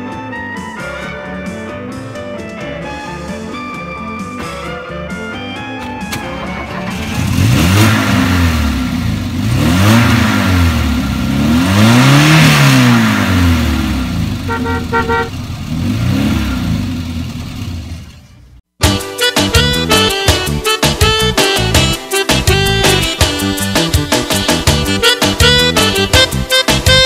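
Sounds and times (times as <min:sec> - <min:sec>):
car engine revving: 0:05.8 - 0:18.6
car horn beeps: 0:14.4 - 0:15.5.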